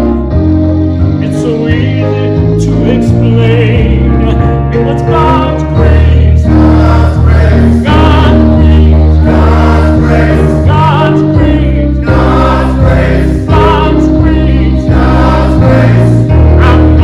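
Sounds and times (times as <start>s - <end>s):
instrumental accompaniment: 0.0s - 17.0s
sustained low bass notes: 0.0s - 17.0s
choir singing: 5.4s - 17.0s.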